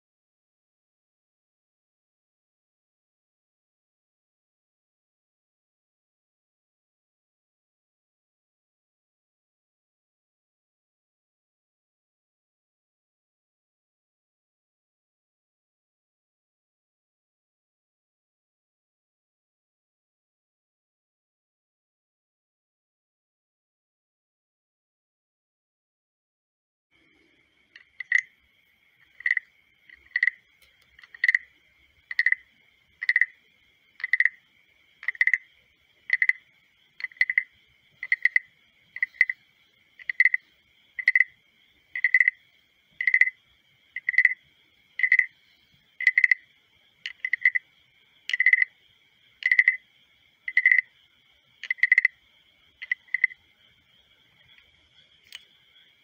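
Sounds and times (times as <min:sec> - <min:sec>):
wooden guiro rasping croak: 0:27.3 - 0:53.8.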